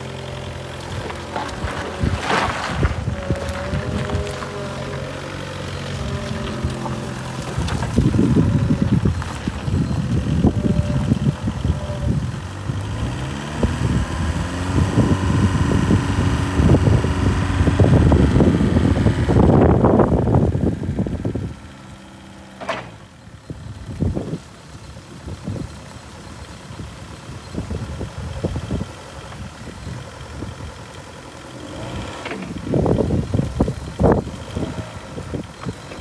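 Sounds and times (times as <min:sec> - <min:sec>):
forklift engine revving and idling: 0:00.0 - 0:36.0.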